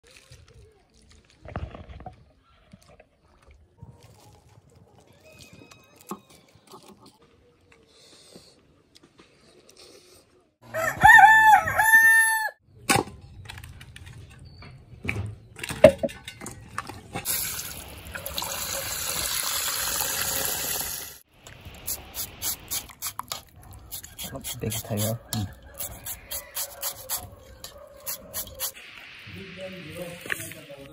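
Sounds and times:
rooster crowing: 10.6 - 12.6, 25.6 - 28.7.

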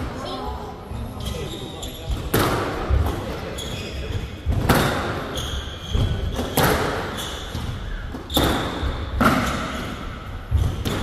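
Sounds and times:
shoes squeaking on court: 1.1 - 2.4, 3.4 - 11.0
squash ball hitting walls: 2.1 - 3.3, 4.5 - 11.0
racket hitting ball: 6.3 - 7.1, 8.2 - 9.9.

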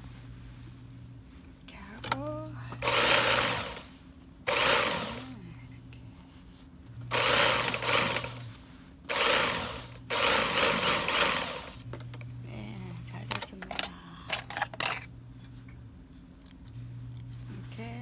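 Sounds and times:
sewing machine motor humming: 2.8 - 5.4, 7.1 - 8.5, 9.1 - 11.9
sewing machine rapid stitching: 7.1 - 8.4, 9.1 - 11.8.

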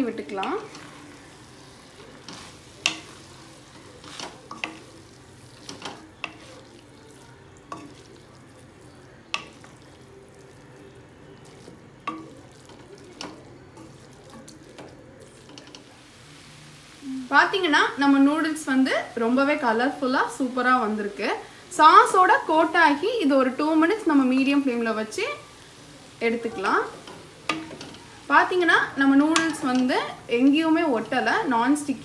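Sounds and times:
faint frying sizzle: 0.0 - 32.0
spatulas scraping metal pan: 0.2 - 6.8.

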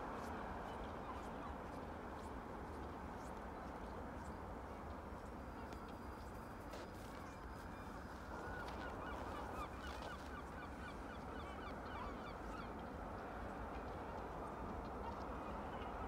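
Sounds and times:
waterbirds calling: 7.2 - 16.0.

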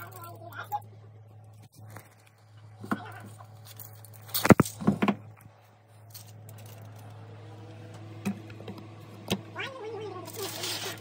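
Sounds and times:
steady low hum: 0.0 - 10.4
aluminium foil crinkling: 10.1 - 11.0.

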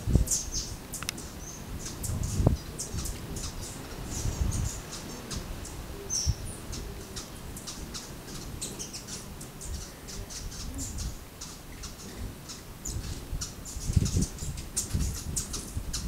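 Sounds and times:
birds chipping: 0.0 - 16.0.

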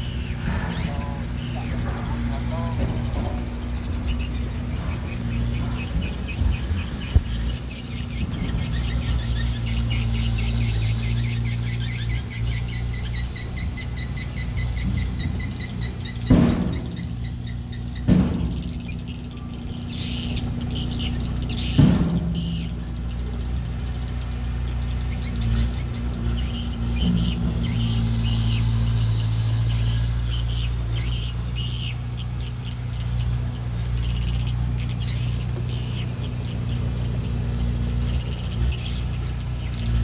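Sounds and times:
loud metal clanks: 0.0 - 9.4, 14.7 - 30.9
heavy machine engine running: 0.0 - 40.0
rhythmic high squeaking: 0.0 - 40.0.

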